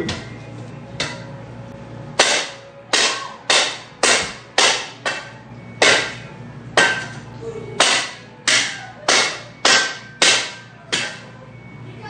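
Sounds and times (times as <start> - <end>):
sharp hard strikes: 2.2 - 7.2, 7.8 - 11.3.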